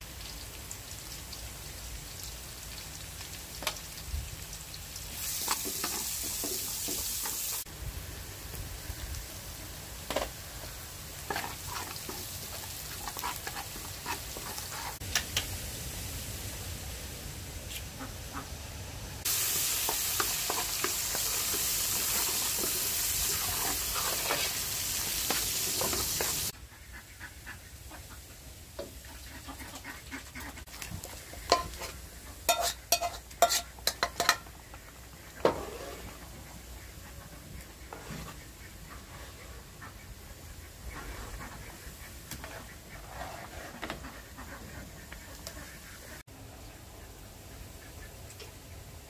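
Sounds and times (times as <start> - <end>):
egg sizzling in hot oil: 0.0 - 7.7, 8.4 - 16.9, 19.2 - 26.6, 30.6 - 36.3
metal spoon clinking against pan: 32.5 - 34.5.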